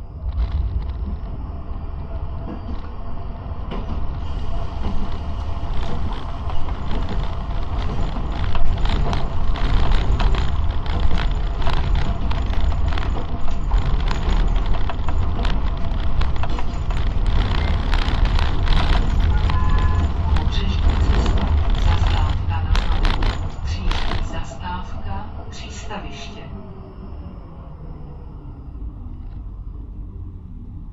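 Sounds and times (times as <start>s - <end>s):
tram wheels rumbling on rails: 0.0s - 30.9s
clicks and knocks of wheels: 3.6s - 24.3s.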